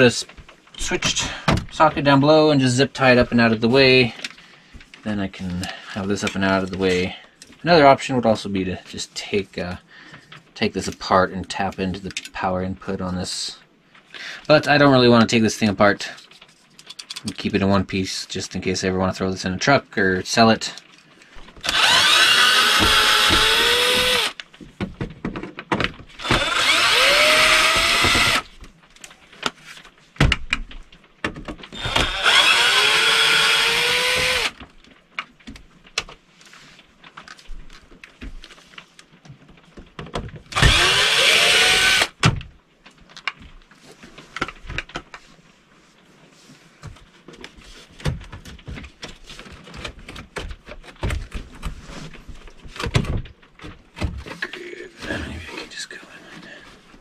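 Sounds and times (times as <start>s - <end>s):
clicks and knocks from handling screws: 16.2s - 17.4s
cordless drill motor whine: 21.6s - 24.4s, 26.2s - 28.4s, 31.7s - 34.6s, 40.6s - 42.1s.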